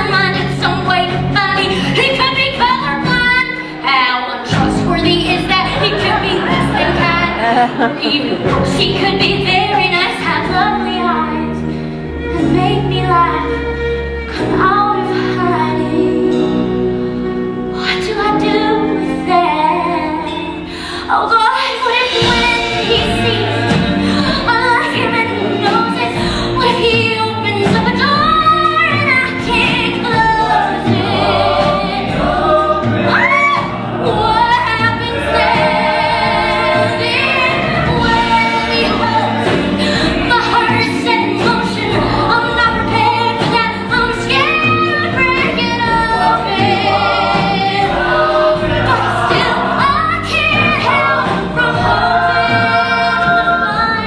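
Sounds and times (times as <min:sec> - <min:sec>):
live band playing: 0:00.0 - 0:54.0
cast singing together: 0:29.7 - 0:44.6, 0:45.3 - 0:54.0.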